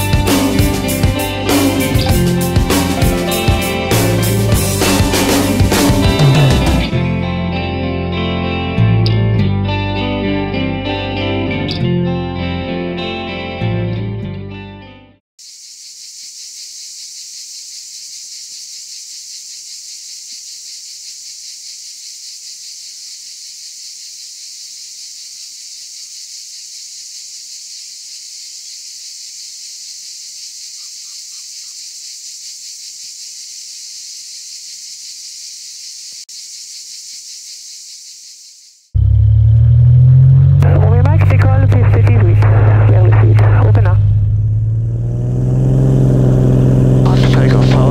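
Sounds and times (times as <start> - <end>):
cicadas buzzing: 15.4 - 38.9.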